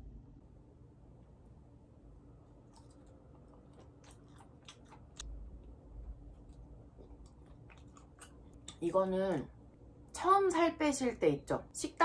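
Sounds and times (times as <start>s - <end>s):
person chewing: 2.4s - 8.8s.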